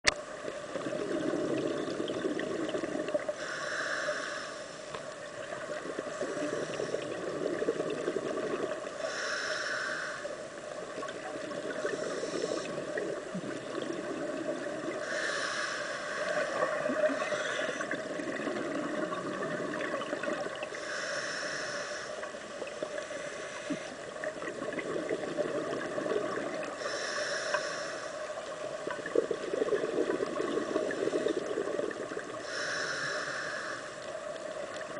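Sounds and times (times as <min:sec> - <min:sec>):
bubbly exhalations: 0:00.8 - 0:03.3, 0:05.7 - 0:08.8, 0:24.4 - 0:26.8, 0:28.9 - 0:32.4
hissing regulator inhalation: 0:01.2 - 0:05.1, 0:06.0 - 0:10.4, 0:11.7 - 0:13.2, 0:14.9 - 0:19.6, 0:20.7 - 0:24.1, 0:26.7 - 0:28.5, 0:30.6 - 0:34.1.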